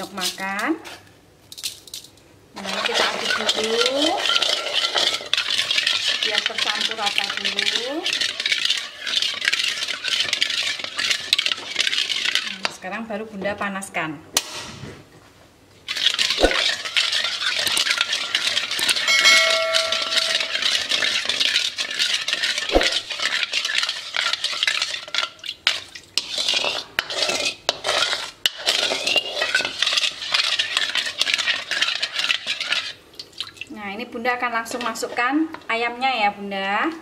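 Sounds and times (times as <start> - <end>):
ladle scraping a wok: 2.6 - 12.8, 15.8 - 33.1
ringing clink: 19.1 - 20.7.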